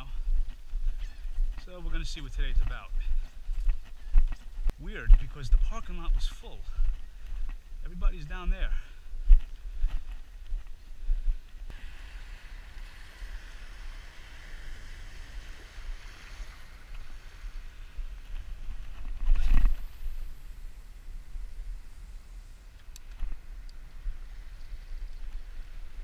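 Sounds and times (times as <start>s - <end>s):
small surf waves washing: 11.8s - 22.7s.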